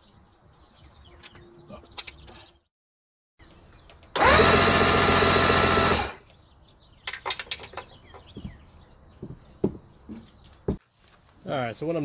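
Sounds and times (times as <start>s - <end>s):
electric starter cranking engine: 4.1s - 6.2s.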